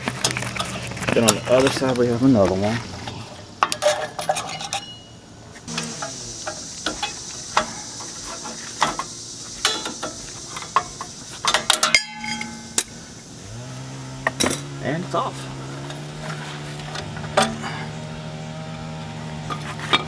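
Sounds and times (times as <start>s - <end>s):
steel tools clinking and scraping: 3.0s - 13.0s, 19.5s - 20.0s.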